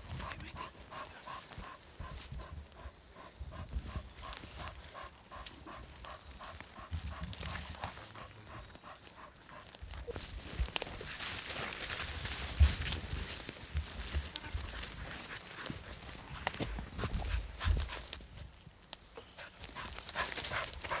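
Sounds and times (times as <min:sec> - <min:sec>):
dog panting hard: 0:00.0 - 0:09.7, 0:14.4 - 0:18.2, 0:19.4 - 0:21.0.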